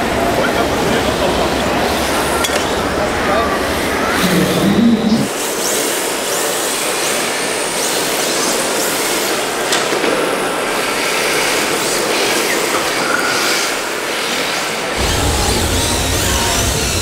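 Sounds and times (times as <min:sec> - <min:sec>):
high motor whine: 0:00.1 - 0:05.4, 0:14.9 - 0:17.0.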